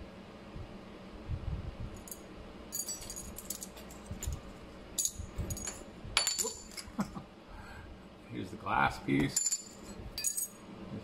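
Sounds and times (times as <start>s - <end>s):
small metal parts clinking: 2.0s - 4.4s, 5.0s - 6.9s, 9.3s - 10.6s.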